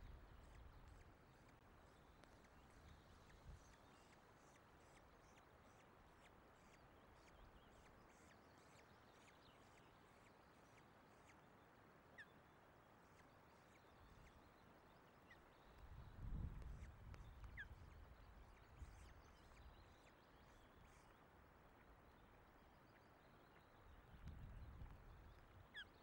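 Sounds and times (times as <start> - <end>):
wind and rain hiss: 15.6 - 19.8.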